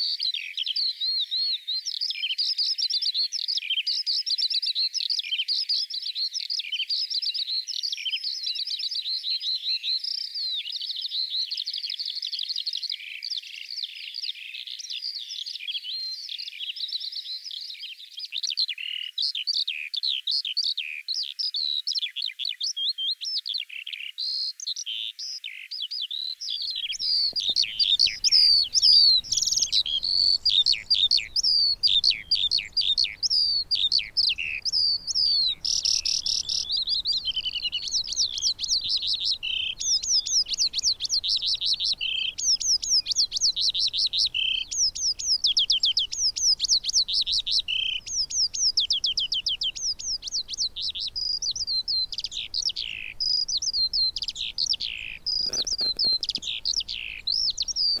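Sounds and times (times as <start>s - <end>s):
skylark singing: 26.6s - 58.0s.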